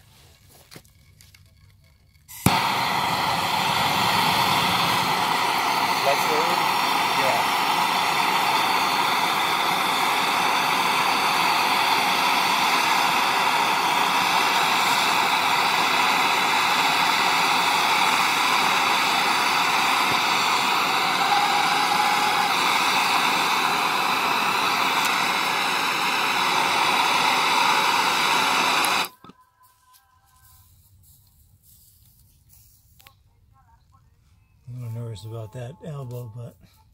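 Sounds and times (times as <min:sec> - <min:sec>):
gas torch flame hissing: 0:02.3 - 0:29.2.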